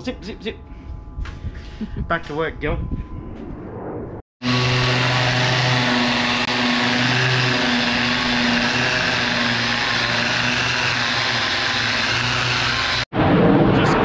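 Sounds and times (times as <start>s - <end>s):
angle grinder grinding metal: 4.4s - 13.1s.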